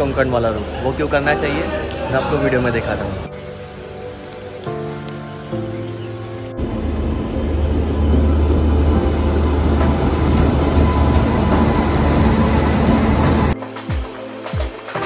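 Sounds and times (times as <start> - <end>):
passing train: 0.0 - 15.0
rushing air: 6.5 - 13.6
train wheels rumbling on rails: 6.6 - 13.6.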